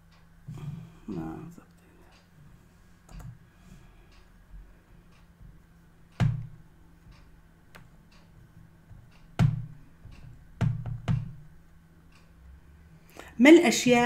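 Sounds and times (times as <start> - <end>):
faint ticks: 3.0 - 10.4
computer mouse clicking: 3.1 - 3.4.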